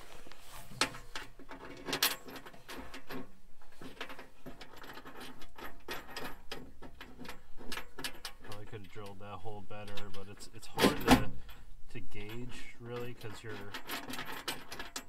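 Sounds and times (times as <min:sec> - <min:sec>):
small metal parts clinking: 0:09.8 - 0:15.0.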